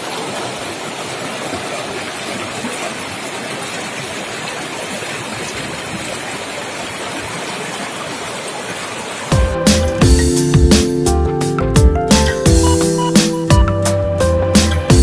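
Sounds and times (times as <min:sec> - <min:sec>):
water rushing over rocks: 0:00.0 - 0:10.1.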